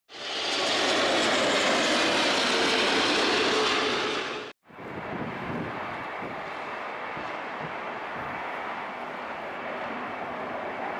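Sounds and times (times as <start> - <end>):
jet engine rushing: 0.1 - 7.6
outdoor background noise: 0.1 - 10.9.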